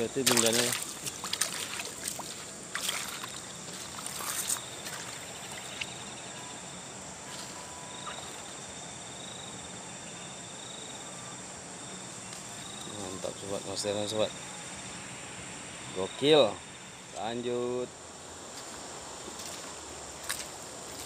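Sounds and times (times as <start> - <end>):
water splashes: 0.0 - 6.2
insect trilling: 0.0 - 17.9
stream water running: 0.0 - 21.0.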